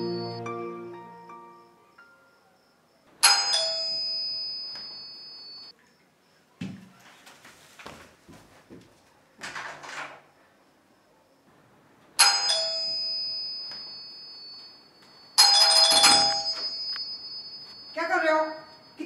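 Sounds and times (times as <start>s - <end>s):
doorbell chime ringing: 0.0s - 2.4s, 3.2s - 5.7s, 12.2s - 19.0s.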